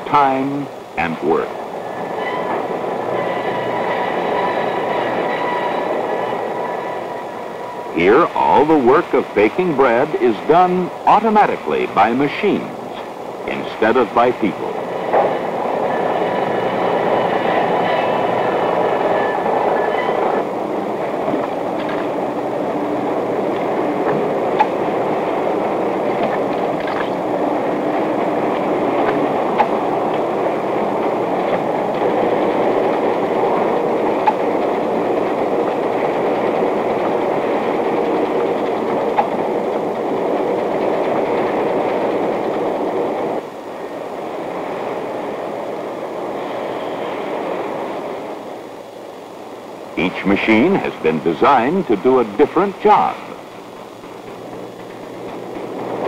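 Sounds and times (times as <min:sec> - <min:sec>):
faint whining tones: 0:14.6 - 0:52.6.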